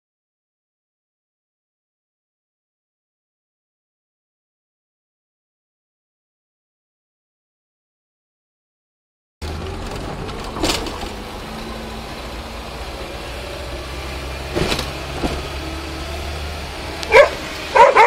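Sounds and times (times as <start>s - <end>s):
car engine running: 9.4s - 18.0s
dog yelping: 17.1s - 18.0s.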